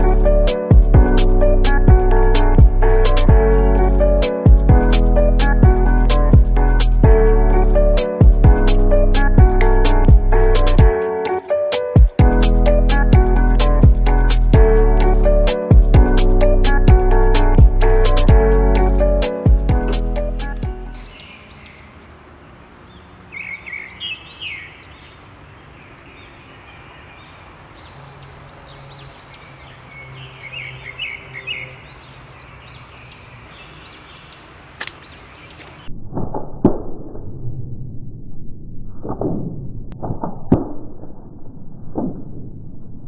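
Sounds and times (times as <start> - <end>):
birds chirping: 16.4 - 35.9
slingshot trigger snap: 34.8 - 35.7.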